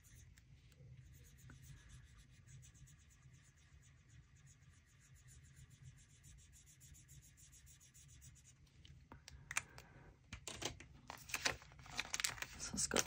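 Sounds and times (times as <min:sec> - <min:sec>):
marker pen strokes on paper: 0:00.0 - 0:08.6.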